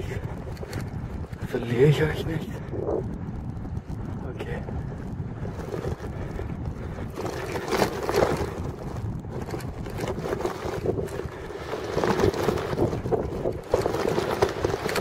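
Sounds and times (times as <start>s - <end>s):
bike bumps and rattles: 0.0s - 15.0s
wind buffeting microphone: 0.0s - 15.0s
tyres crunching over sandy paving: 5.3s - 15.0s.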